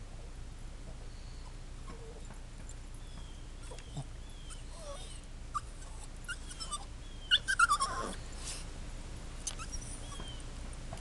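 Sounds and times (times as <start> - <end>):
dog whining: 3.0 - 8.2, 9.4 - 10.5.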